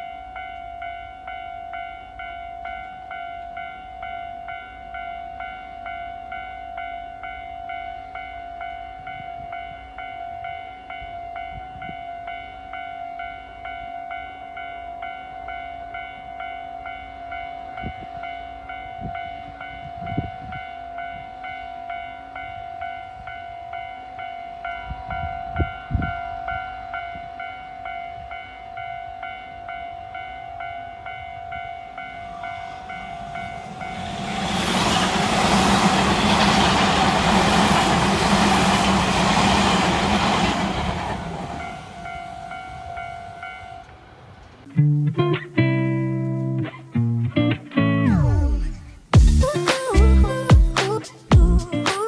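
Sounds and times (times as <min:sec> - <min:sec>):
level crossing bell ringing: 0:00.0 - 0:34.9, 0:41.5 - 0:43.9
electric train passing: 0:00.0 - 0:46.6.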